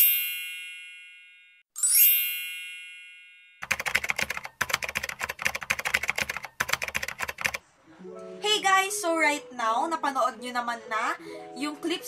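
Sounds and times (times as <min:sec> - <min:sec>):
bright chime: 0:00.0 - 0:03.6
rapid keyboard typing: 0:03.6 - 0:07.6.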